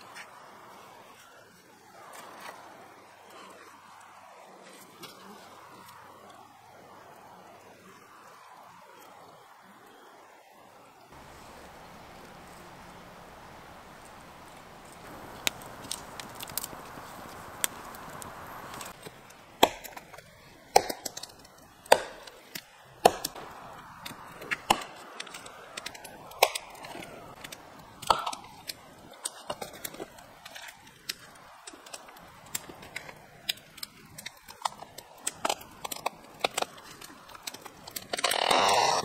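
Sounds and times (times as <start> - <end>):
wood chopping strikes: 19.0 - 22.4, 23.0 - 25.4.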